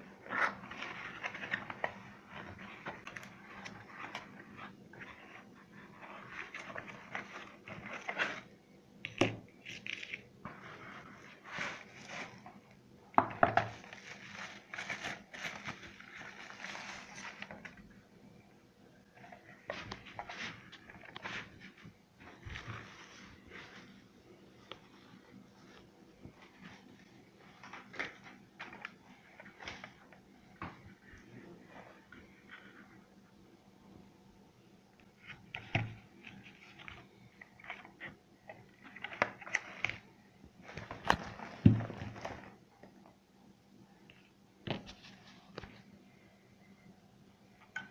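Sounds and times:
plastic and foam crinkling: 0.0s - 18.0s, 19.2s - 24.1s, 35.1s - 43.2s.

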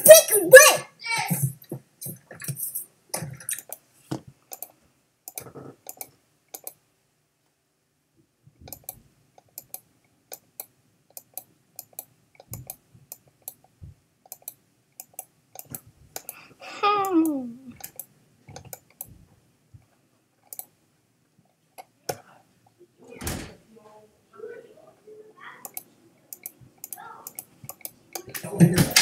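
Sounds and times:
computer mouse clicking: 4.5s - 6.8s, 8.7s - 13.6s, 14.3s - 16.4s, 17.8s - 19.1s, 20.5s - 20.8s, 25.6s - 28.4s.

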